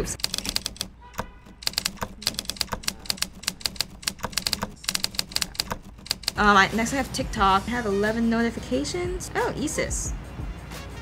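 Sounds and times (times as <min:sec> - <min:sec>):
simulated typewriter key clacks: 0:00.0 - 0:06.6.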